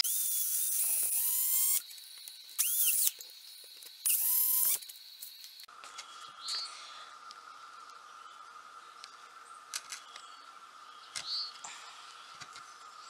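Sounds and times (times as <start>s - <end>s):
cordless drill boring into wood: 0.0s - 3.2s, 4.0s - 5.3s.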